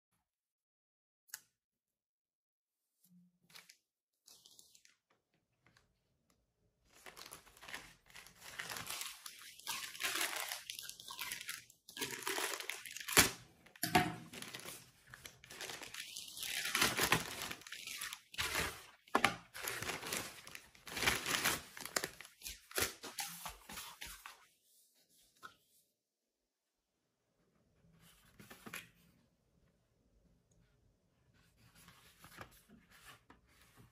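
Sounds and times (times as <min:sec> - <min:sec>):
plastic mailer ripping and crinkling: 0:06.9 - 0:13.5, 0:14.2 - 0:23.8.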